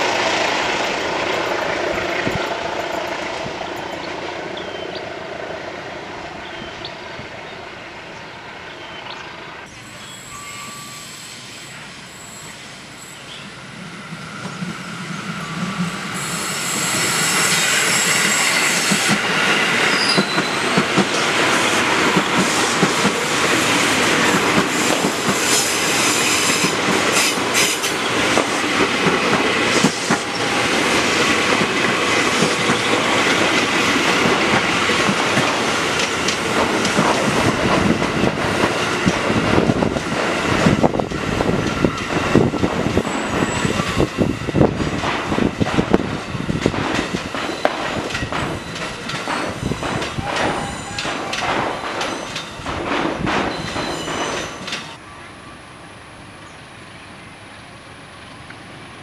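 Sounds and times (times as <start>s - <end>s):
train passing: 0.0s - 59.0s
wheels clicking over rail joints: 31.2s - 43.0s, 44.8s - 55.0s.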